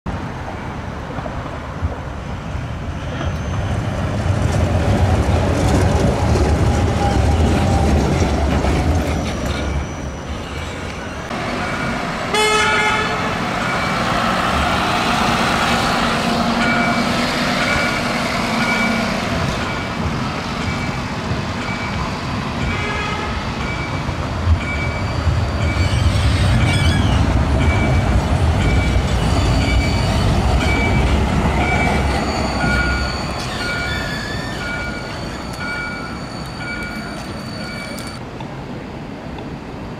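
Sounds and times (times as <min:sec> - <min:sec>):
road traffic: 0:00.1 - 0:39.9
trams rumbling along tracks: 0:00.1 - 0:39.9
vehicle horn toot: 0:12.3 - 0:13.3.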